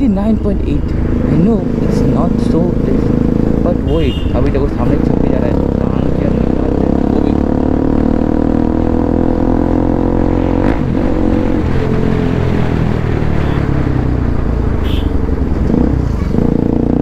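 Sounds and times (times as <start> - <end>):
motorcycle engine running: 0.9 - 11.4.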